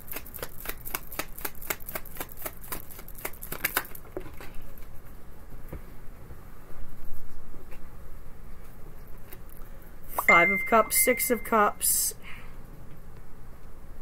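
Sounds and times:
cards being shuffled: 0.0s - 4.6s.

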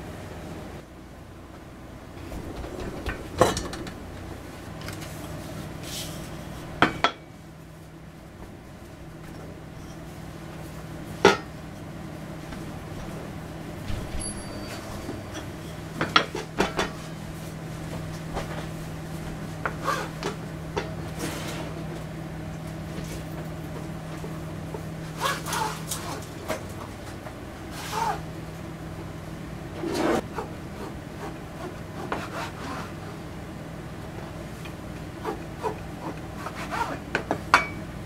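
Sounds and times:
rolling pin rolling dough: 29.9s - 33.2s.

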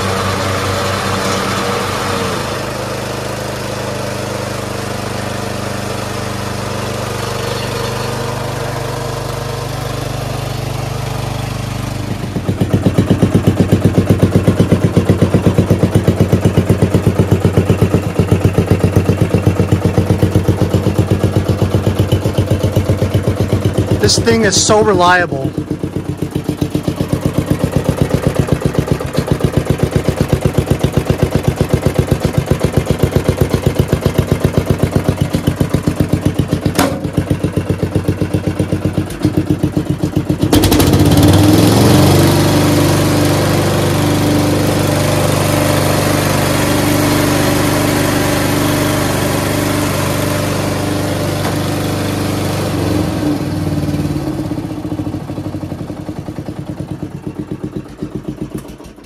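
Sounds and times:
lawn tractor engine: 0.0s - 59.0s.

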